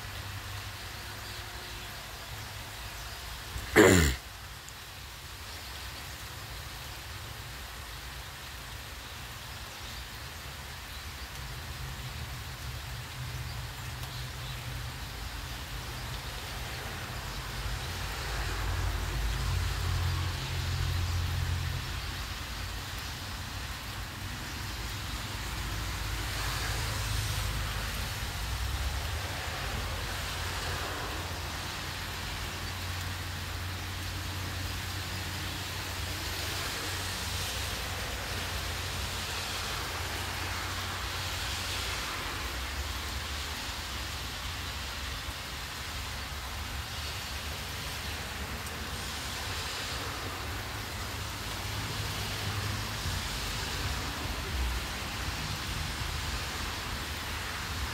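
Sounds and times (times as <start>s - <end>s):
light rain falling: 0.0s - 57.9s.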